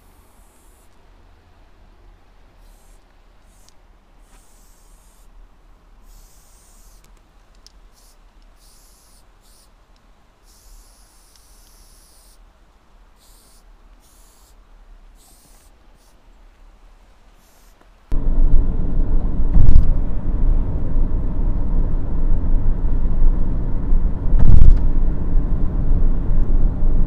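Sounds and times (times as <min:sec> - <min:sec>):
spray paint can hissing: 0:00.0 - 0:00.9, 0:02.6 - 0:05.3, 0:06.0 - 0:07.1, 0:07.9 - 0:09.8, 0:10.4 - 0:12.4, 0:13.2 - 0:16.2, 0:17.3 - 0:17.8
low steady hum: 0:00.0 - 0:27.0.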